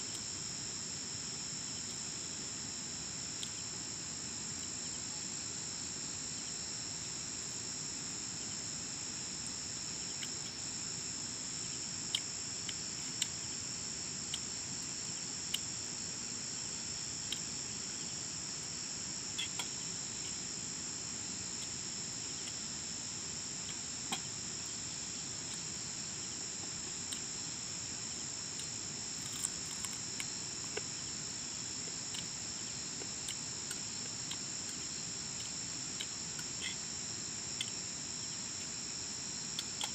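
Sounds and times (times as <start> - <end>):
shrill insect chorus: 14.4 - 39.9.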